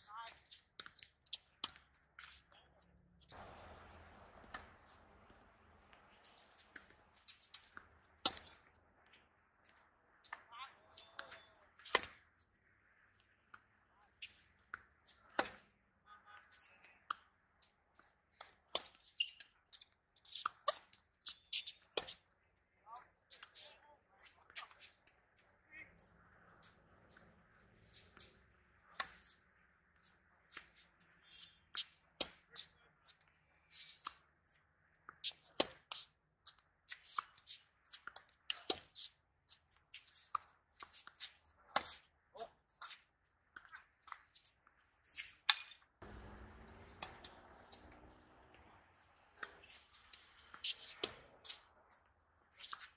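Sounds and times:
tennis balls bouncing on court: 3.3 - 12.3, 45.5 - 52.9
tennis balls struck by rackets: 3.3 - 12.3, 13.4 - 15.7, 28.0 - 29.3, 30.5 - 32.5, 45.2 - 52.9
shoe scuffs on court: 49.4 - 52.9.

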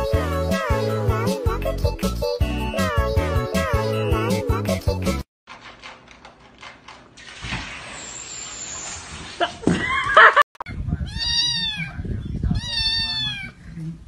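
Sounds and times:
cat meowing: 11.1 - 13.6.

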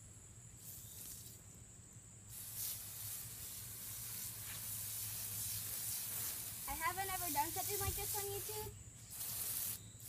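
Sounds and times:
hose nozzle spraying water: 2.3 - 9.8.

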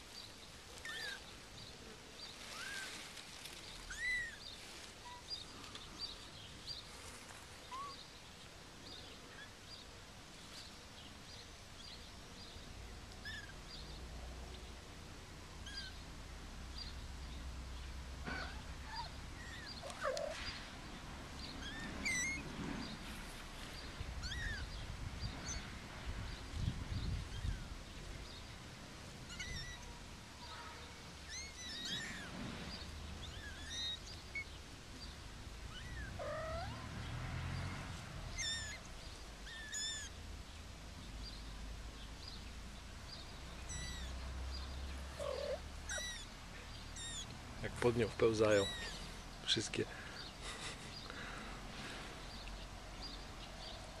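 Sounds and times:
kittens mewing: 18.2 - 20.5, 24.2 - 24.7, 29.3 - 30.0, 31.3 - 32.4, 35.7 - 36.8, 38.3 - 38.8, 43.7 - 44.1, 45.1 - 47.4, 48.6 - 49.1.

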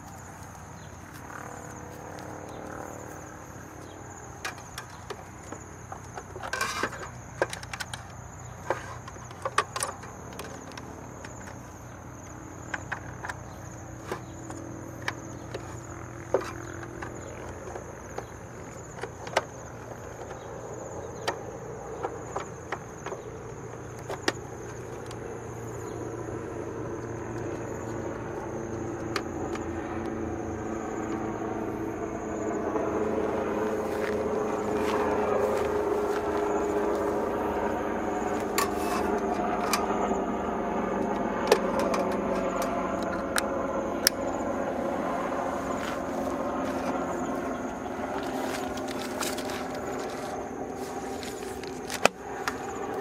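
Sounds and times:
crickets chirping: 0.0 - 53.0
low motor drone: 0.0 - 53.0.

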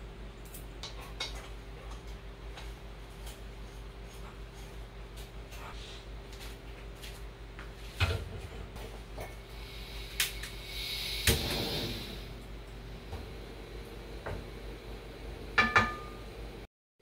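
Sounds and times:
gas valve hissing: 9.4 - 16.6
gas burner catching with a rush: 10.0 - 16.5.

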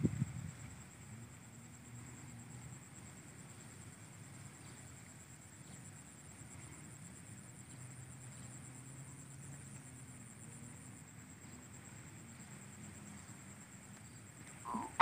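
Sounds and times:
high-pitched insect trill: 0.0 - 15.0
low hum: 14.7 - 15.0.

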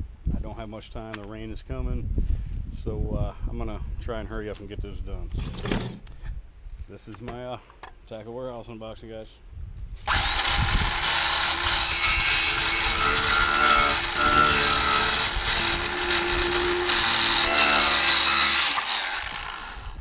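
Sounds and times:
circular saw cutting cardboard: 10.1 - 20.0.

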